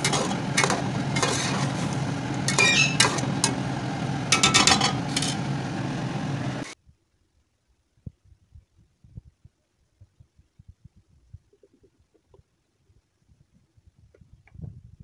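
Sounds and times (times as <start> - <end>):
metal spoon clinking against pot: 2.5 - 3.6, 4.3 - 5.4.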